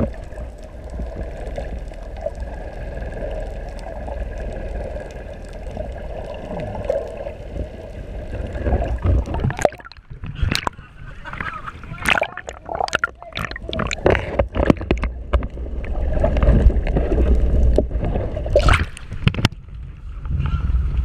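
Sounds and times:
muffled underwater sloshing: 0:00.0 - 0:21.0
steady low rumble: 0:00.0 - 0:21.0.

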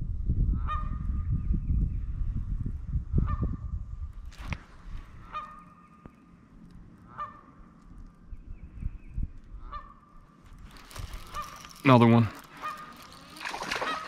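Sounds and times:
wind rumble on microphone: 0:00.0 - 0:05.6, 0:06.6 - 0:13.8
goose honking: 0:05.2 - 0:05.7, 0:07.0 - 0:07.5, 0:11.2 - 0:11.8, 0:12.5 - 0:14.0.

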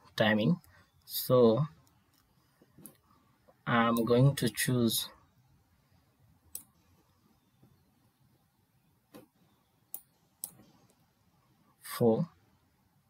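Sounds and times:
computer mouse clicking: 0:09.9 - 0:11.0.

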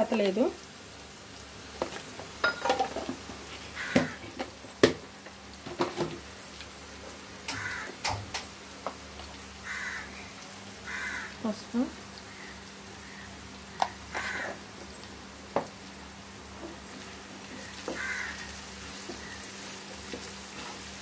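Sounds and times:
bird calling: 0:12.2 - 0:14.6, 0:17.6 - 0:18.5, 0:19.1 - 0:19.5.

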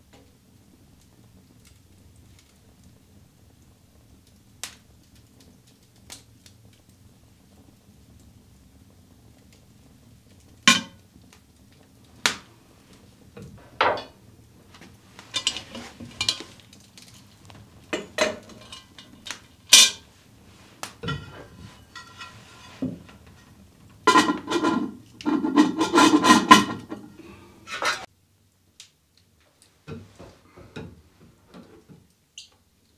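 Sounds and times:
cast iron pot lid clanking: 0:10.7 - 0:10.9, 0:15.3 - 0:16.5, 0:17.9 - 0:20.0, 0:21.0 - 0:23.5, 0:24.1 - 0:28.0.

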